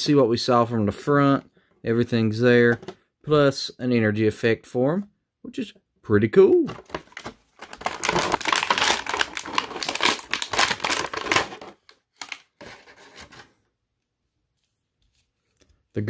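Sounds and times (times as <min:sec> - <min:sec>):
plastic tray crinkling: 0:06.7 - 0:13.4.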